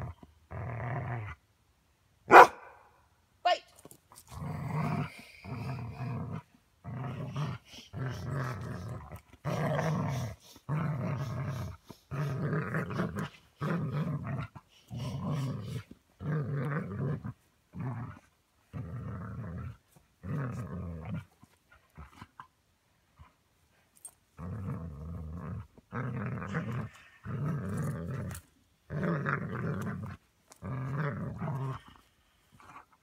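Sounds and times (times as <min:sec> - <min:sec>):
dog growling: 0:04.3 - 0:21.3, 0:24.4 - 0:32.9.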